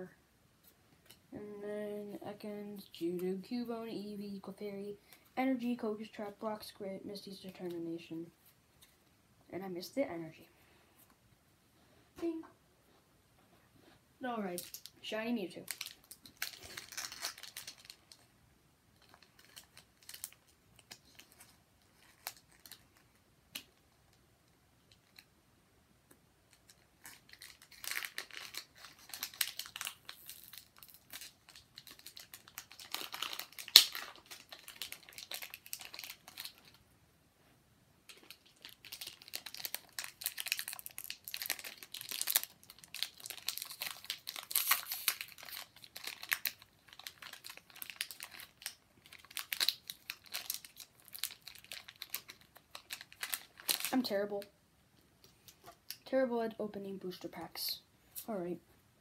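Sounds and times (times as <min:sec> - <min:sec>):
foil wrapper crinkling and tearing: 0:14.4 - 0:18.3, 0:19.0 - 0:23.8, 0:26.5 - 0:36.8, 0:38.1 - 0:54.4.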